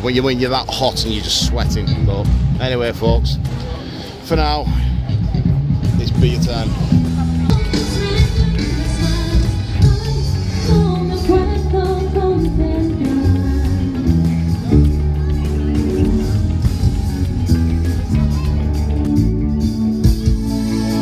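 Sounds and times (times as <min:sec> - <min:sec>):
heavy bass line: 0:01.0 - 0:21.0
electric guitar: 0:05.2 - 0:21.0
person singing: 0:07.3 - 0:17.0.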